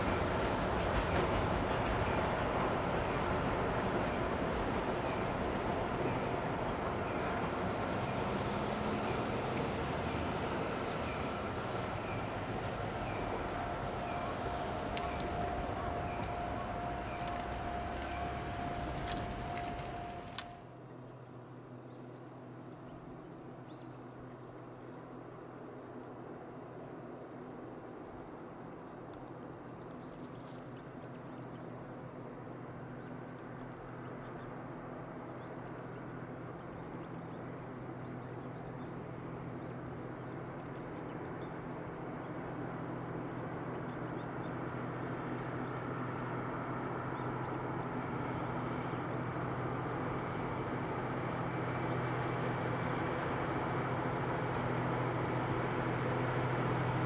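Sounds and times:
diesel locomotive engine drone: 0:00.0 - 0:57.0
small birds chirping: 0:32.8 - 0:44.6, 0:47.1 - 0:51.1.

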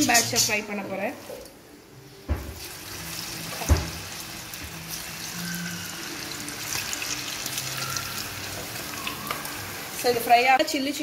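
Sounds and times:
chicken deep-frying in oil: 0:02.5 - 0:11.0.

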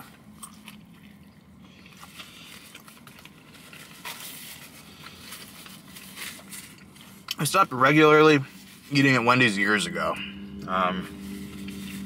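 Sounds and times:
person chewing: 0:00.3 - 0:03.7
low hum: 0:09.2 - 0:12.0.

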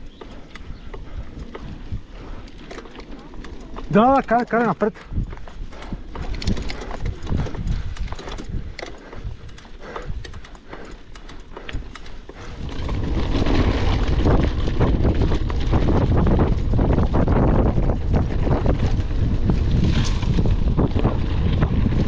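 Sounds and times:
bike rattling over gravel: 0:00.0 - 0:22.0
wind on microphone: 0:05.0 - 0:10.9, 0:11.5 - 0:22.0.

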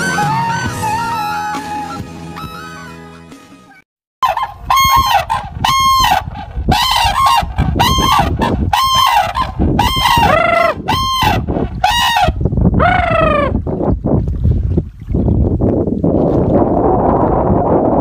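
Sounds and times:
cranes trumpeting calls: 0:04.2 - 0:12.4.

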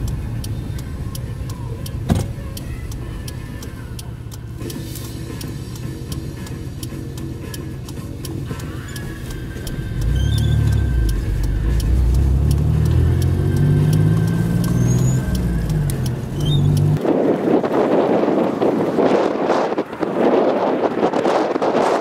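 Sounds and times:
car engine: 0:00.0 - 0:22.0
road noise: 0:00.0 - 0:22.0
wind buffeting microphone: 0:16.2 - 0:22.0.

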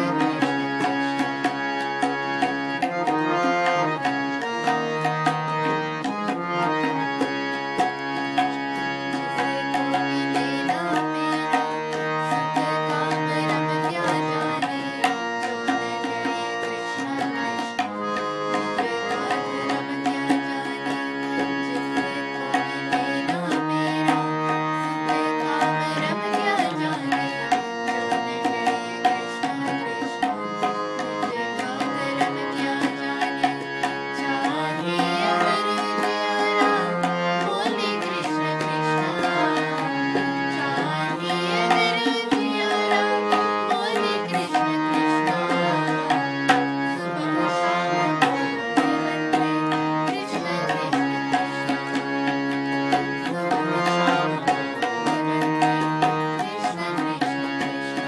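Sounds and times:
harmonium melody: 0:00.0 - 0:58.0.

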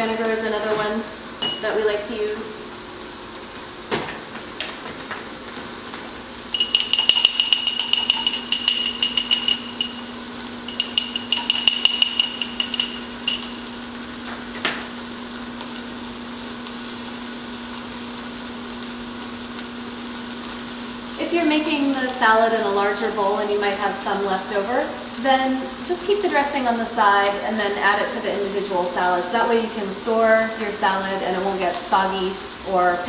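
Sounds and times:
utensil whisking in glass jar: 0:06.5 - 0:10.1, 0:10.7 - 0:13.9.

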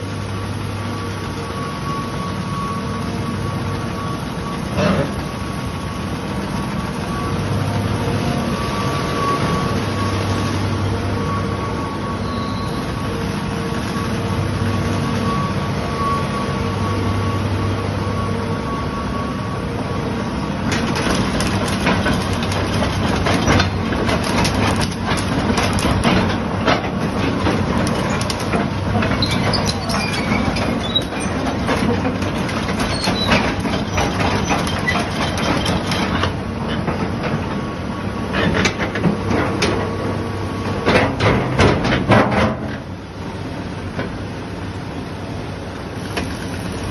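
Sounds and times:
excavator diesel engine running: 0:00.0 - 0:46.9.

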